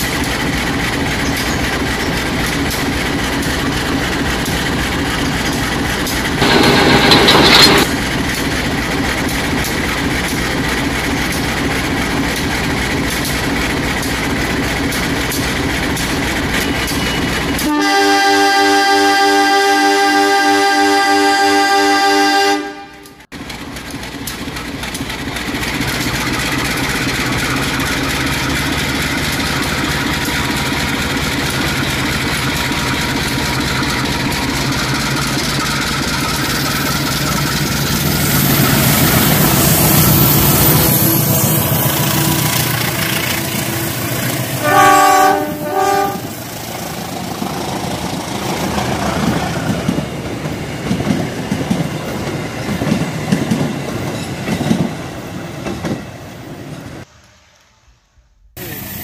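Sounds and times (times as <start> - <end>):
wheels clicking over track: 0.0 - 17.7, 23.3 - 41.0
toy train horn blasts: 6.4 - 7.8, 17.6 - 23.2, 39.4 - 46.6
toy train motor drone: 6.4 - 7.9.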